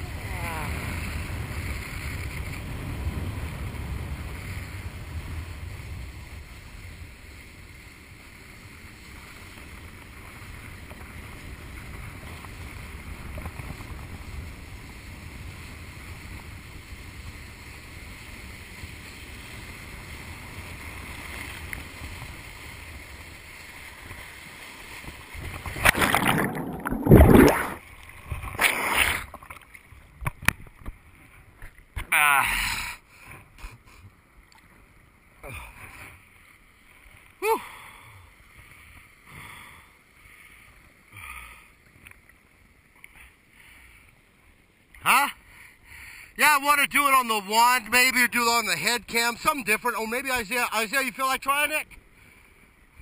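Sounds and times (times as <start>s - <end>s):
wind rushing over camera: 0.0s - 29.4s
loud splashing: 25.6s - 27.9s
water spray: 28.6s - 29.3s.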